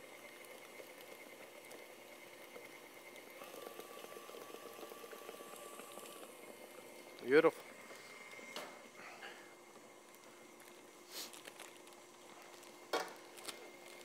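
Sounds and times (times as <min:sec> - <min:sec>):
stand mixer beating dough: 0:00.0 - 0:09.0
faint steady hum: 0:00.0 - 0:14.0.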